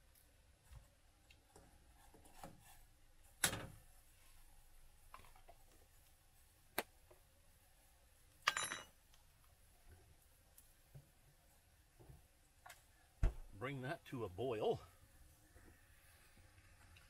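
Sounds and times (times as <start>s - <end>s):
low thump: 13.2s - 13.5s.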